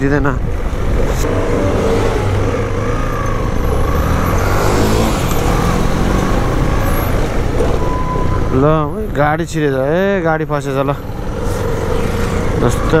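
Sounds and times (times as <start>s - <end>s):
vehicle engine rumble: 0.0s - 13.0s.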